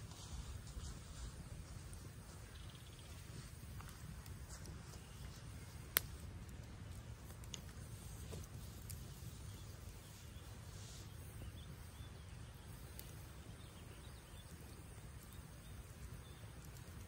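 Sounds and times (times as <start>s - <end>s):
campfire crackling: 0.0s - 17.0s
fire popping sharply: 1.4s - 17.0s
faint bird chirps: 2.3s - 3.6s, 9.0s - 17.0s.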